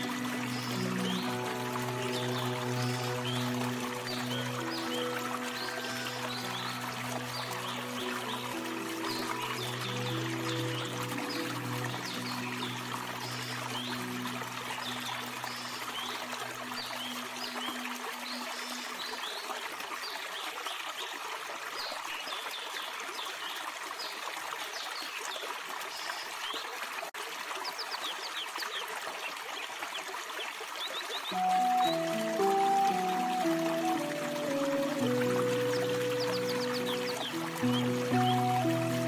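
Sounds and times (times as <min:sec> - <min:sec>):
soft low music tones: 0:00.0 - 0:19.8, 0:31.3 - 0:39.0
stream trickling over rocks: 0:00.0 - 0:39.0.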